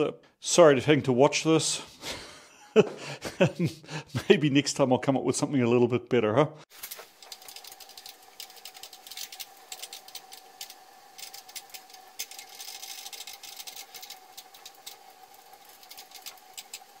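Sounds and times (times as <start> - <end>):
rapid clicking and rattling: 6.7 - 17.0
small machine whining: 6.8 - 17.0.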